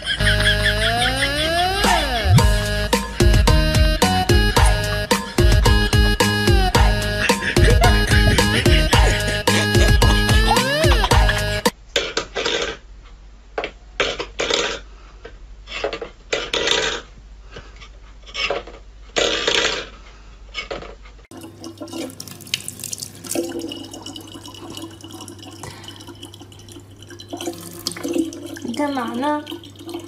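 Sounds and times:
steady low hum: 0.0s - 11.7s
water running from tap into bottle: 21.3s - 30.0s.

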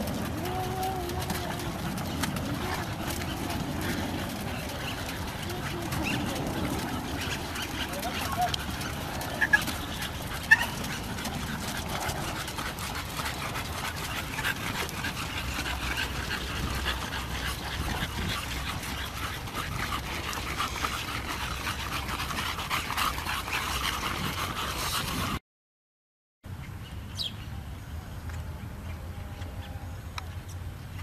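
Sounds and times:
dogs panting: 0.0s - 25.4s.

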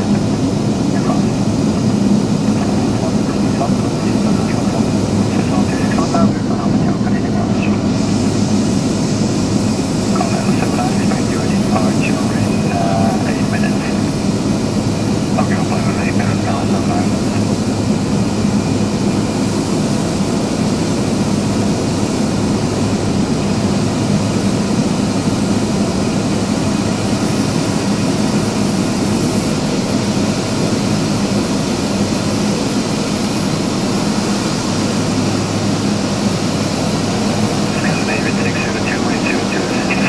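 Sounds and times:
aircraft engine low hum: 0.0s - 40.0s
rushing air noise: 0.0s - 40.0s.

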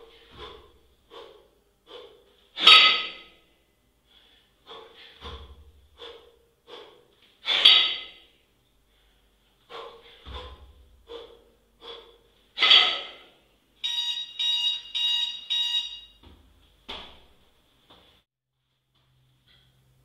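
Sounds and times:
sharp forceful exhales: 0.0s - 3.3s, 4.1s - 8.3s, 8.9s - 13.3s
electronic timer beeping: 13.8s - 16.2s.

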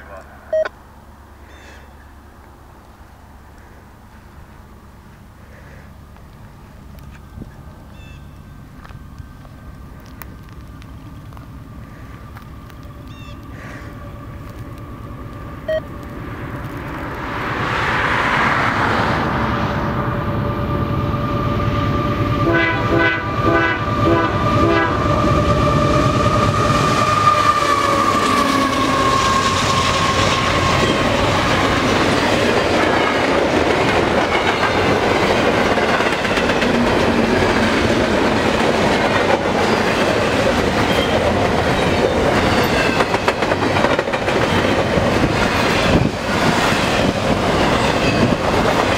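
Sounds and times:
train rumble: 0.0s - 48.9s
locomotive horn: 21.9s - 31.2s
wheels clickety-clack: 27.6s - 48.9s.

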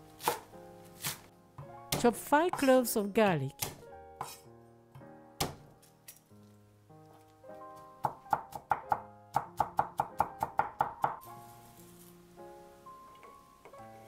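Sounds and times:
light background music: 0.0s - 14.0s
knife chopping on wooden board: 0.2s - 2.6s, 3.6s - 4.4s, 5.4s - 5.6s.

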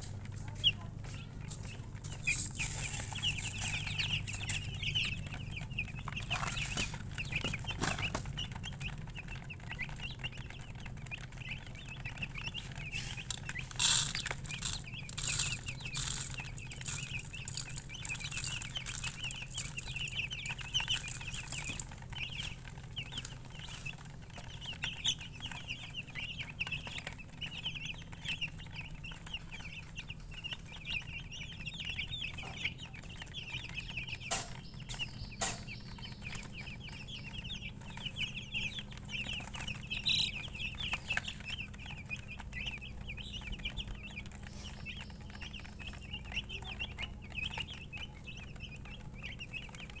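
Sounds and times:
chicks peeping: 0.0s - 50.0s.

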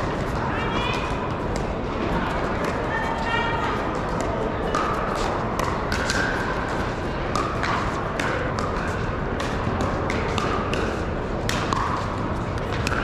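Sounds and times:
din of busy hall: 0.0s - 13.0s
paddles striking balls: 3.7s - 13.0s.

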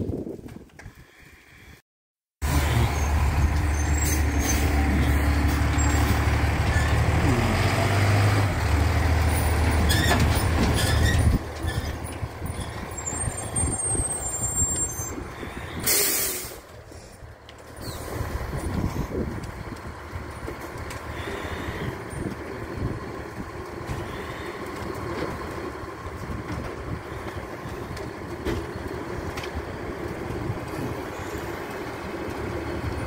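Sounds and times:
diesel engine running: 2.4s - 33.0s
air brake hiss: 15.7s - 16.7s.

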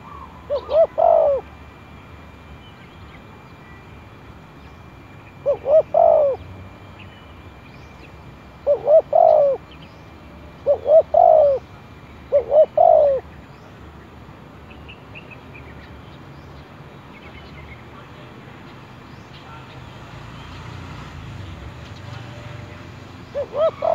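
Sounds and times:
dove cooing: 0.0s - 1.5s, 5.4s - 6.5s, 8.6s - 9.7s, 10.5s - 13.3s, 23.3s - 23.9s.

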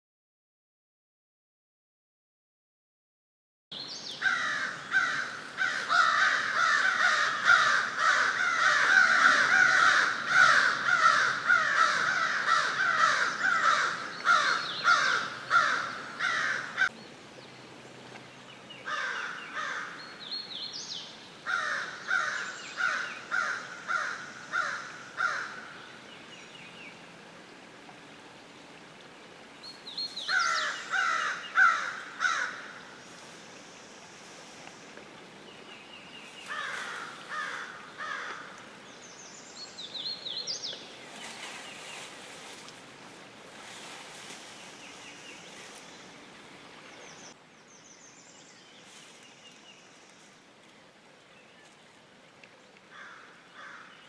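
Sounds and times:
crows cawing: 4.2s - 16.9s, 18.9s - 20.0s, 21.5s - 25.7s, 30.3s - 32.8s, 36.5s - 38.6s, 52.9s - 53.9s.

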